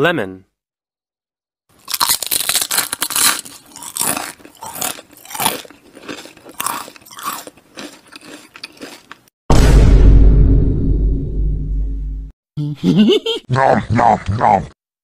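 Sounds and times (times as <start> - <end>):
mouth chewing and smacking: 1.9 - 9.3.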